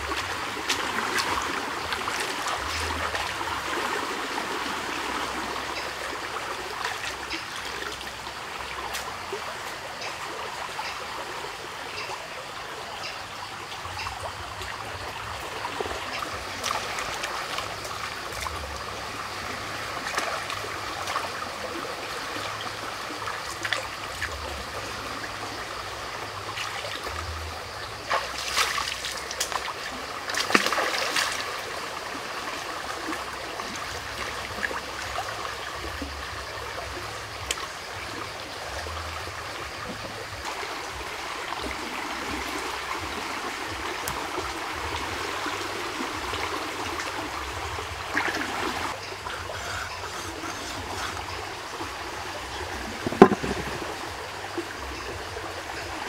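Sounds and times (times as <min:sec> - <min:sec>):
stream flowing: 0:00.0 - 0:56.0
hands splashing in water: 0:53.0 - 0:53.9.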